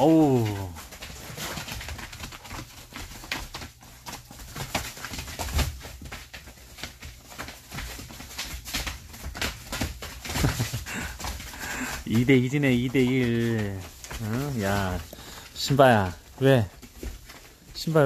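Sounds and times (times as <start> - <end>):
paws scuffling: 0.0 - 18.0
plastic tarp rustling: 0.0 - 18.0.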